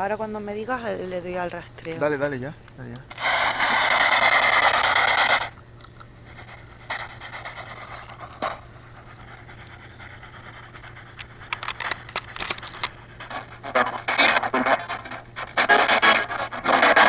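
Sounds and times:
broken radio fragments: 3.0s - 8.7s, 10.3s - 17.0s
bursts of radio static: 3.1s - 5.6s, 12.8s - 17.0s.

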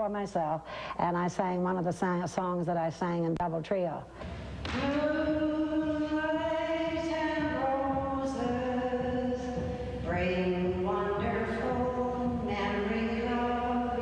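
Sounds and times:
woman singing unaccompanied: 4.7s - 14.0s.

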